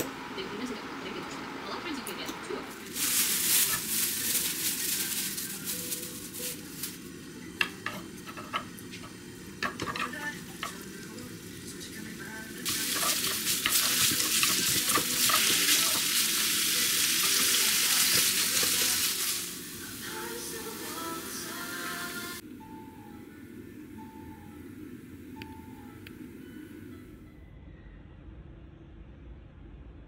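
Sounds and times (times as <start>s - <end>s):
food sizzling in a pan: 2.7s - 22.4s.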